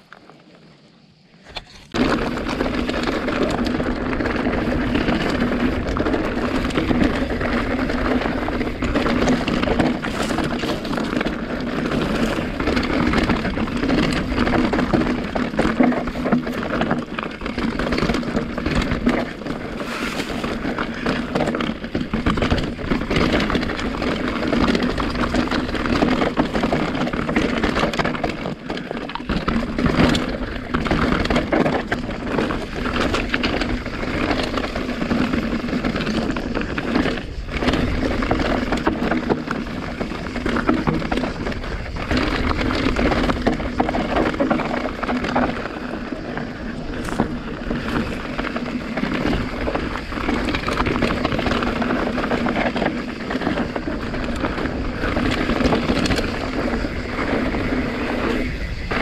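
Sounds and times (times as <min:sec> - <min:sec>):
bike rattling: 0:00.0 - 0:59.0
tyres crunching over stones: 0:01.4 - 0:59.0
wind noise on microphone: 0:01.4 - 0:59.0.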